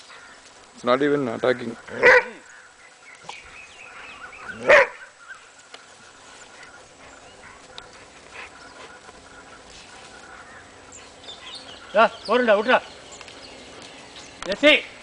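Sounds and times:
dog barking: 2.0 - 2.4, 4.6 - 5.1.

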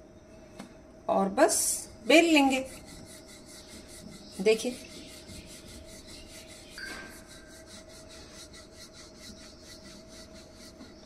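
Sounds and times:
rolling pin rolling dough: 1.5 - 11.0.

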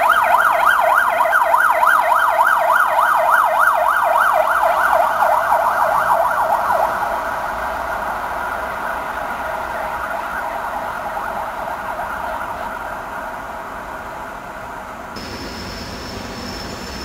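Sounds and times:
emergency vehicle siren yelping: 0.0 - 17.0
passenger train rolling: 6.6 - 17.0.

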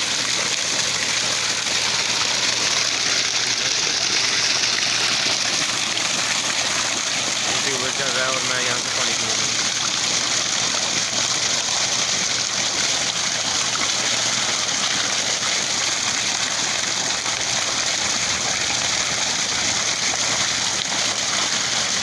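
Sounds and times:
water gushing from pipe: 0.0 - 22.0
water splashing on ground: 0.0 - 22.0.

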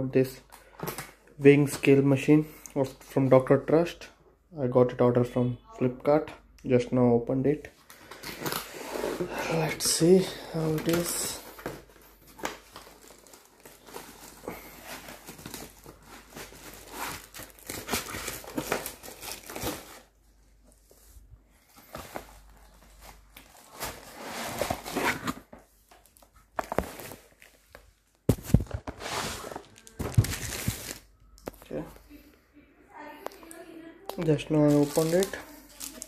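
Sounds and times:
cardboard packaging rustling: 7.9 - 31.9, 34.2 - 36.0.

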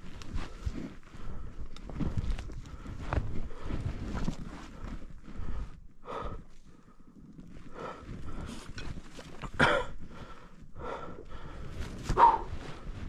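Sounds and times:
footsteps in snow: 0.0 - 5.8, 11.7 - 13.0
person breathing heavily: 0.3 - 9.0, 9.6 - 13.0.

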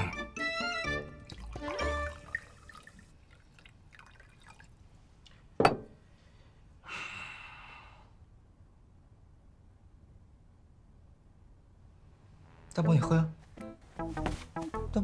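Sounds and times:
liquor pouring into a glass: 1.2 - 4.8
glass clink: 5.6 - 5.9.

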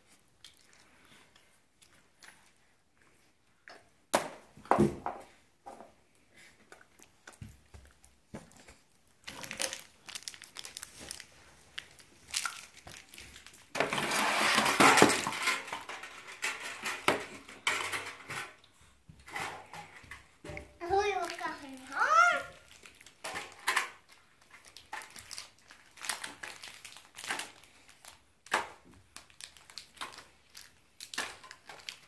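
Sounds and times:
plastic wrappers crinkling: 7.1 - 18.6, 20.8 - 32.0.

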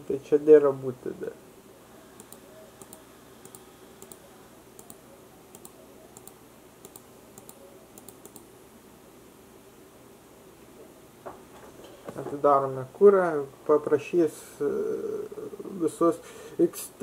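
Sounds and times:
keyboard and mouse clicking: 2.2 - 4.2, 4.8 - 8.5.

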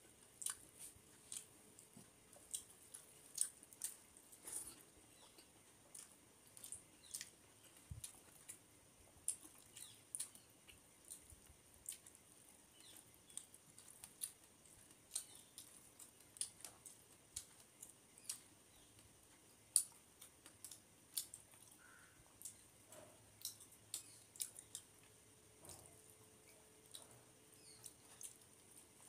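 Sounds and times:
chewing and lip-smacking: 0.2 - 8.6, 9.2 - 29.0.

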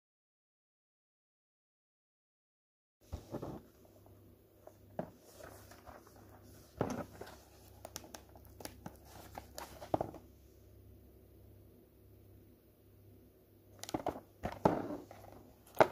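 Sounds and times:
faint steady hum: 3.0 - 15.9.

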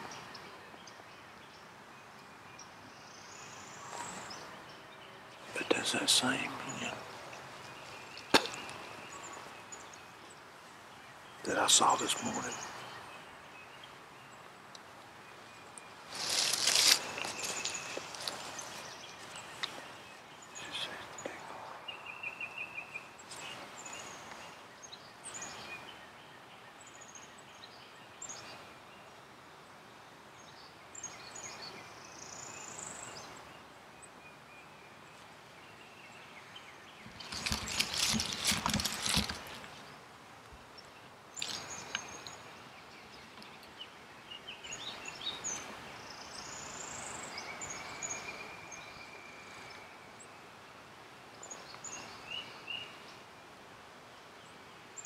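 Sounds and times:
rural background: 0.0 - 55.0
songbirds chirping and trilling: 0.0 - 55.0
close rustling and scraping: 16.1 - 19.9, 37.0 - 39.9.

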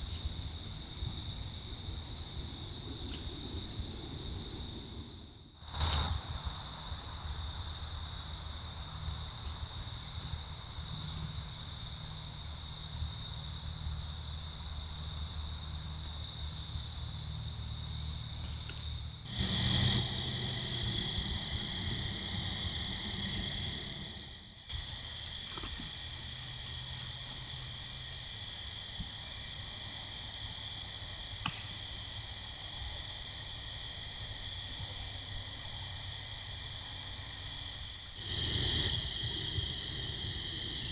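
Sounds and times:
crickets and insects chirping: 0.0 - 40.9
low rumble: 19.1 - 25.2.

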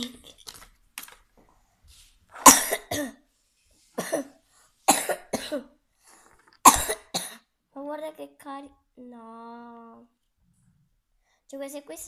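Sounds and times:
child coughing: 2.4 - 3.2, 4.0 - 5.8, 6.6 - 7.5.

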